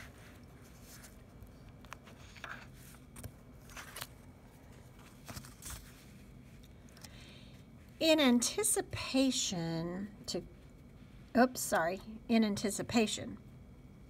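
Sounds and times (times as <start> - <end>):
soft rustles of book: 0.0 - 8.0.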